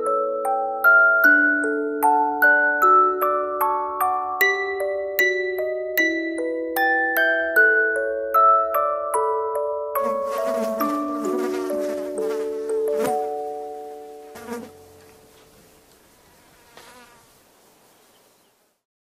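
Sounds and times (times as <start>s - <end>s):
held music notes: 10.0s - 16.0s.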